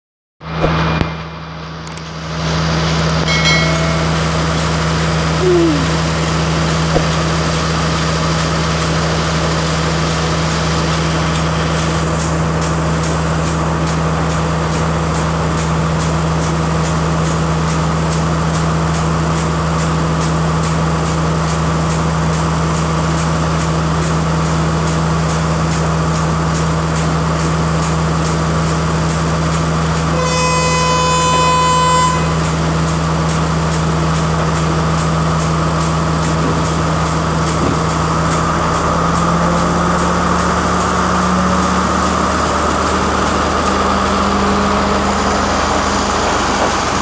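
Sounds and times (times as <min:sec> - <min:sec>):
diesel engine humming: 0:00.6 - 0:14.7, 0:31.5 - 0:47.0.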